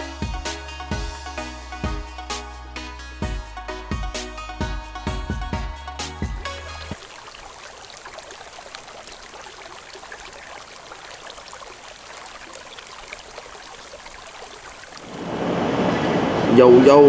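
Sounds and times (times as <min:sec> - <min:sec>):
running water trickling: 0:06.4 - 0:16.1.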